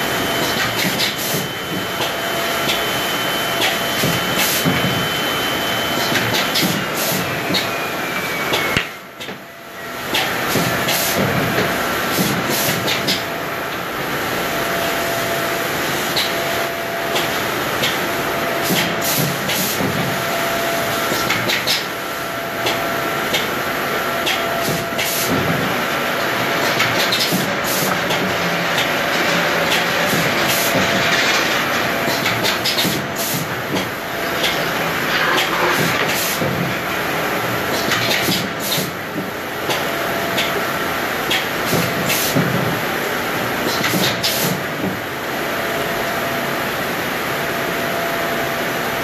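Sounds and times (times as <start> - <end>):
woodworking machine running: 0.0 - 42.0.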